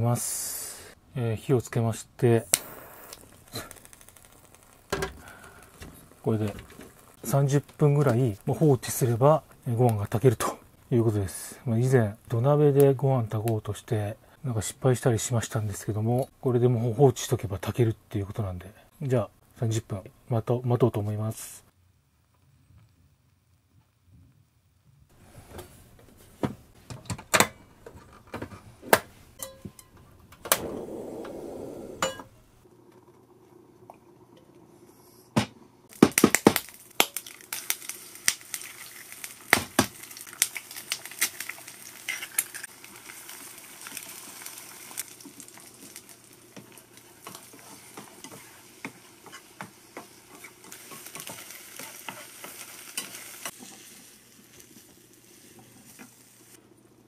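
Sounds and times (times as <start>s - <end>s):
crackling sizzle with sharp pops: 1.7s - 16.5s, 32.0s - 57.0s.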